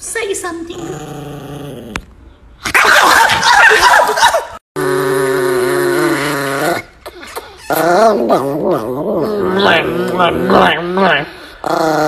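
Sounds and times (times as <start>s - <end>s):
small dog snarling and growling: 0.7s - 2.0s, 4.8s - 12.0s.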